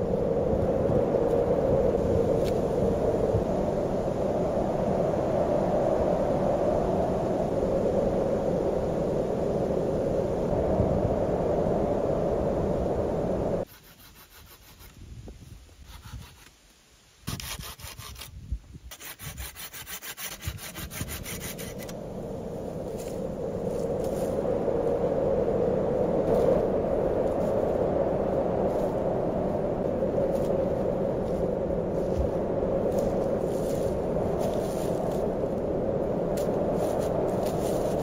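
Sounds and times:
steady rushing noise: 0.0 - 13.7, 19.8 - 38.0
hand saw cutting wood: 13.7 - 15.0, 15.8 - 16.5, 17.3 - 21.9.

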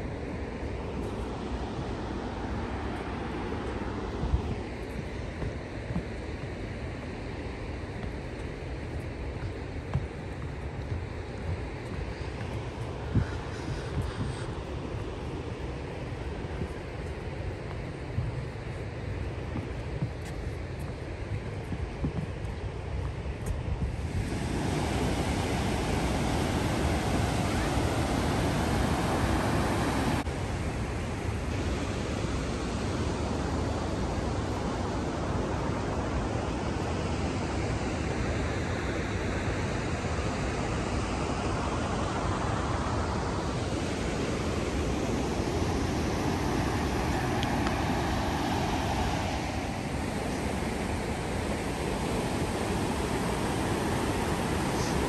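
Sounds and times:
whitewater rushing: 24.0 - 30.3, 41.6 - 55.0.

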